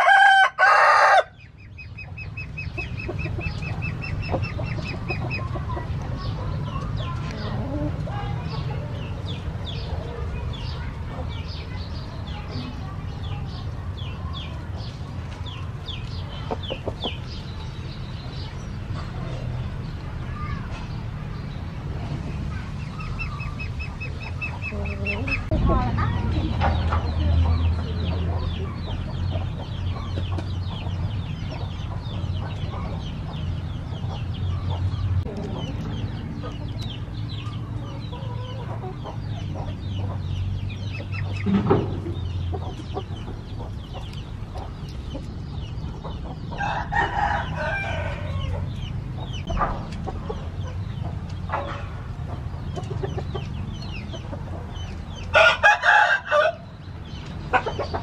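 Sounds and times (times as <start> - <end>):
rooster crowing: 0.0 - 1.4, 46.6 - 48.6, 55.3 - 56.6
chickens clucking: 0.0 - 58.0.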